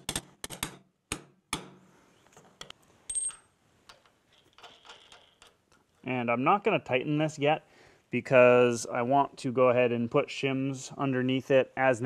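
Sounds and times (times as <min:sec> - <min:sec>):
hammer striking metal bolt: 0:00.0 - 0:01.8.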